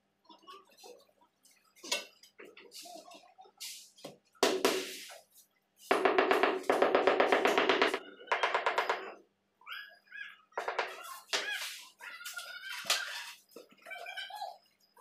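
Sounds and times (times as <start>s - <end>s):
mallet tapping on floor tile: 5.9s - 9.1s.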